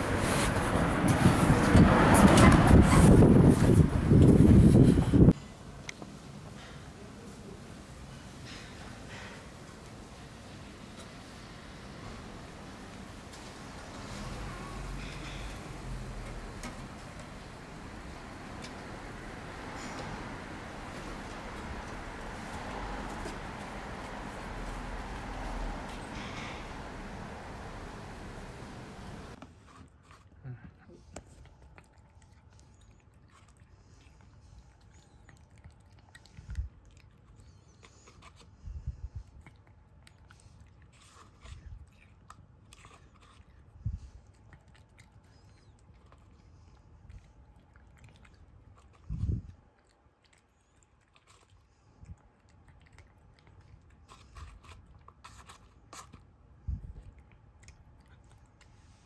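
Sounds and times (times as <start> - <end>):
kitten chewing meat: 31.0 - 59.0.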